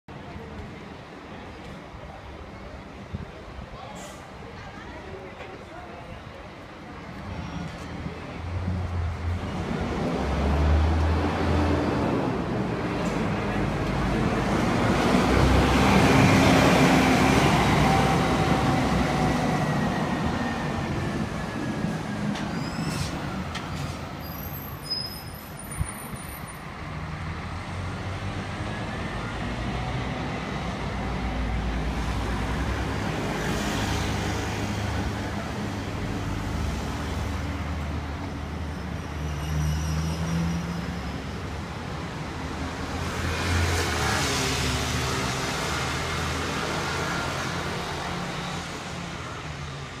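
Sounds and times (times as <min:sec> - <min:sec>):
cars and scooters passing: 0:08.0 - 0:22.6, 0:26.6 - 0:50.0.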